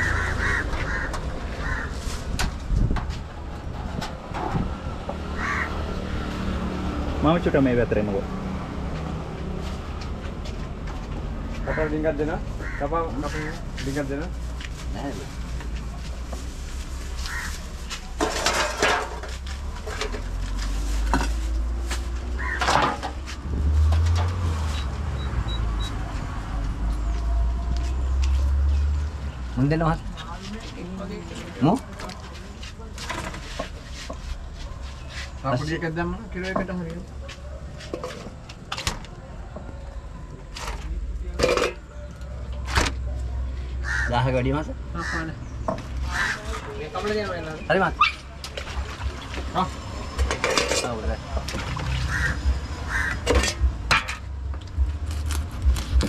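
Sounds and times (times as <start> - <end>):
crows cawing: 0.0 - 2.2, 5.3 - 6.0, 11.6 - 13.6, 17.2 - 17.6, 22.4 - 22.8, 43.8 - 45.4, 46.0 - 46.6, 52.0 - 53.3
scraping: 15.6 - 24.7
metal trays clattering: 18.2 - 20.3.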